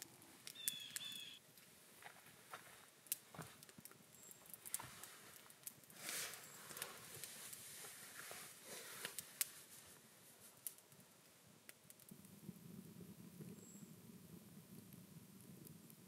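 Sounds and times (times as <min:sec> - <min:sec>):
campfire crackling: 0:00.0 - 0:16.0
rustle of movement: 0:01.6 - 0:11.0.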